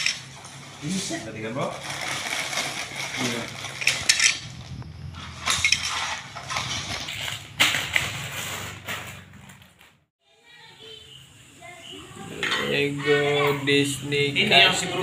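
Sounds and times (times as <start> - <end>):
plastic bricks clattering: 5.3 - 8.4.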